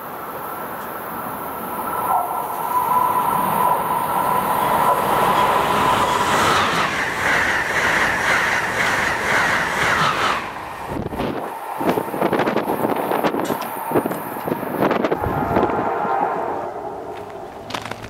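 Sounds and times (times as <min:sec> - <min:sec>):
high-speed train passing: 0:00.0 - 0:18.0
steady high tone: 0:14.7 - 0:17.8.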